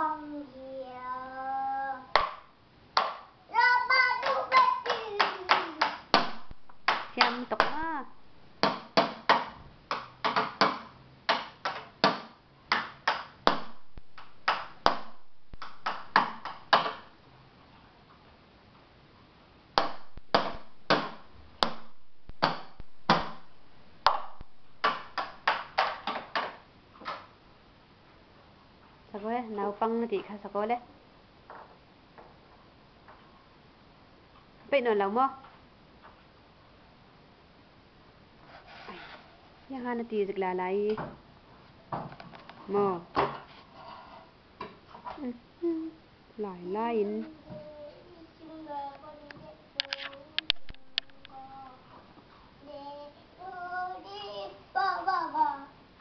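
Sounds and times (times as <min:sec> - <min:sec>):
toddler singing: 0:00.0 - 0:02.2, 0:03.5 - 0:06.0, 0:47.2 - 0:52.0, 0:52.6 - 0:55.8
hits on makeshift drum: 0:19.8 - 0:23.4.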